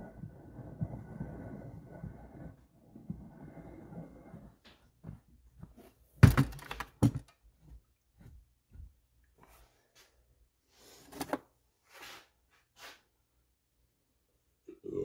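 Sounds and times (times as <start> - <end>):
chainsaw knocking on workbench: 6.2 - 7.3
loud thunks: 6.2 - 7.3.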